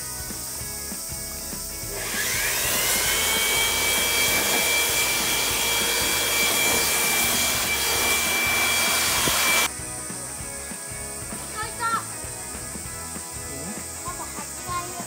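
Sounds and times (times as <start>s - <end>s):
handheld blower whining: 1.8s - 9.7s.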